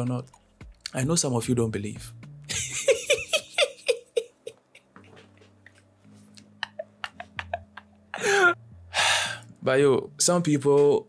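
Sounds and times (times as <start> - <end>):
soft low background music: 0.0 - 11.0
man laughing: 2.5 - 5.2, 6.4 - 8.6.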